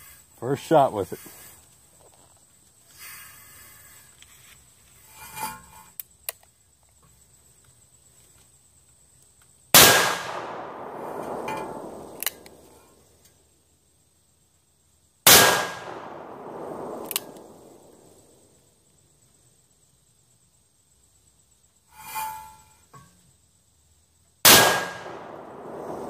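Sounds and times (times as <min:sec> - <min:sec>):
revolver gunshots with echo: 0:09.8 - 0:12.6, 0:15.3 - 0:18.1, 0:24.5 - 0:26.0
light metallic click: 0:11.2 - 0:12.6, 0:17.0 - 0:17.5.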